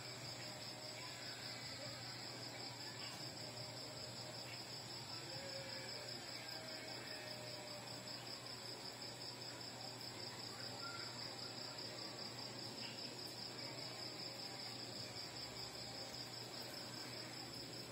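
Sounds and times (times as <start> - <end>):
crickets chirping: 0.0 - 17.9.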